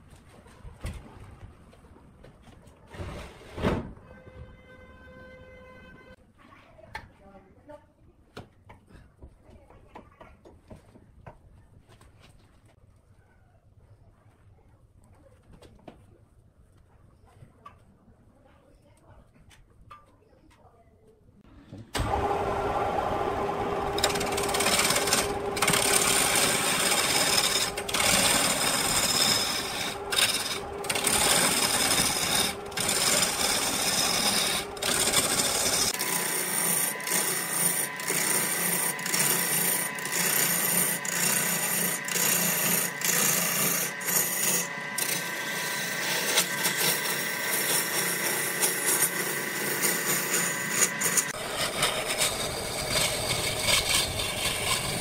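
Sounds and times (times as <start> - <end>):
lathe gouge scraping wood: 22.0 - 55.0.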